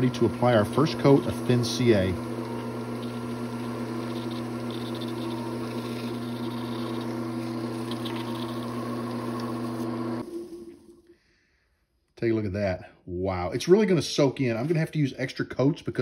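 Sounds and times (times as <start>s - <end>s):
wood lathe motor hum: 0.0s - 11.0s.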